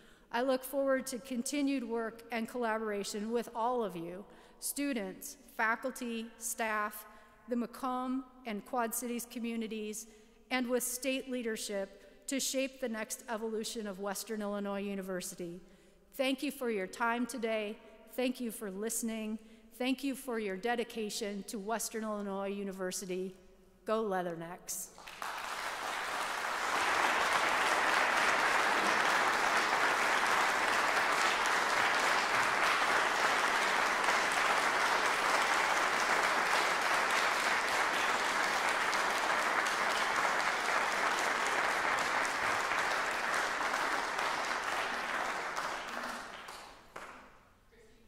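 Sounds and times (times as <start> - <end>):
audience applauding: 24.9 - 47.2.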